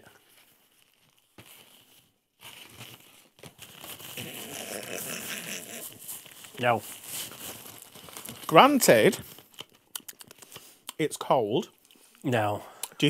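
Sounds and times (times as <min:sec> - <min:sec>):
crinkly rustling: 0:00.0 - 0:10.8
wet chewing: 0:09.5 - 0:11.0.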